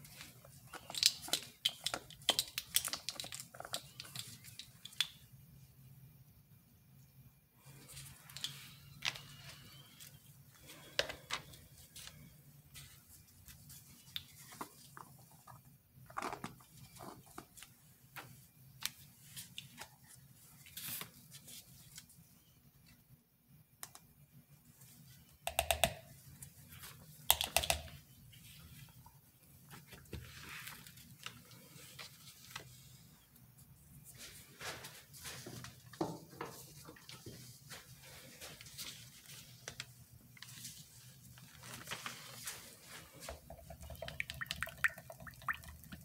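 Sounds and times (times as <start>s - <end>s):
plastic items clicking and tapping: 0.7s - 5.2s.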